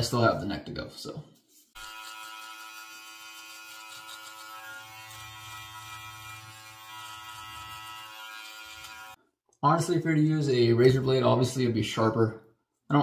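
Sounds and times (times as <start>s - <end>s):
electric beard trimmer running: 1.8s - 9.2s.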